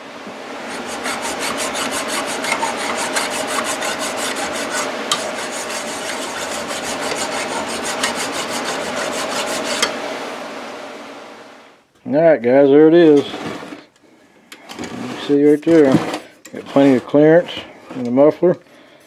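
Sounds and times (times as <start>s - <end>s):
metal file rasping on metal: 0.7s - 10.0s.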